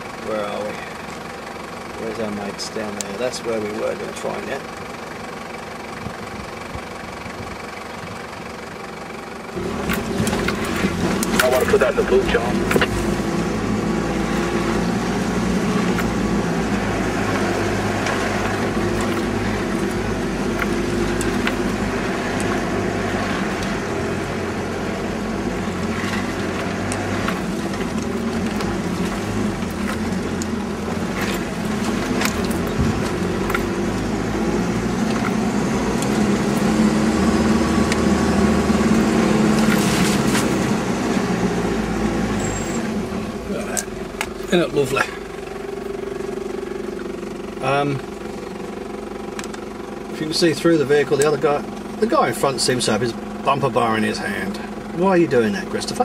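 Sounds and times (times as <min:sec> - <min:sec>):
engine running: 0:00.0 - 0:56.0
knocks and rattles over bumps: 0:09.6 - 0:41.5.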